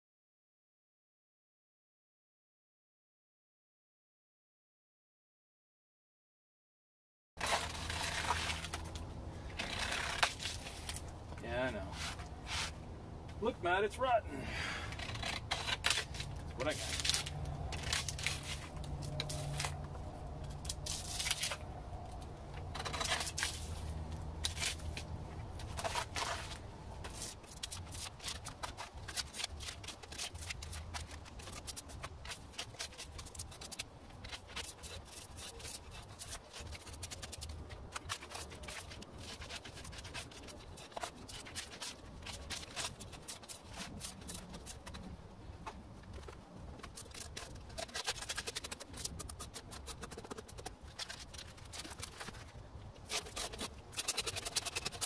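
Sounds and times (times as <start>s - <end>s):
drawknife scraping bark off log: 7.4s - 11.1s, 14.9s - 19.8s, 20.4s - 21.7s, 22.6s - 45.1s, 46.8s - 55.0s.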